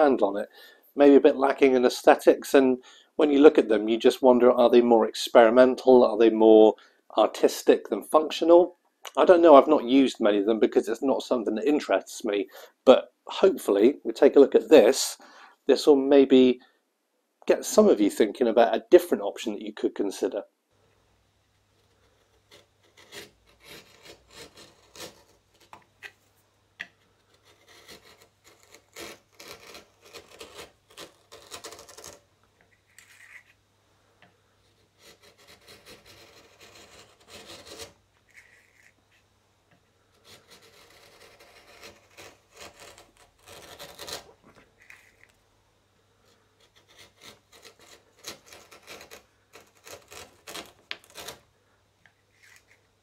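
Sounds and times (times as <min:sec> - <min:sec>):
chisel scraping wood: 0:21.6 - 0:26.2, 0:26.8 - 0:33.6, 0:34.6 - 0:45.4, 0:46.2 - 0:52.9.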